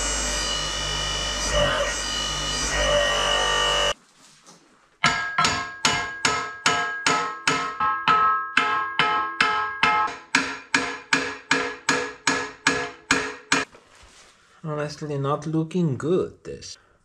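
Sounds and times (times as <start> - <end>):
hammer striking steel ringing: 5.0 - 13.7.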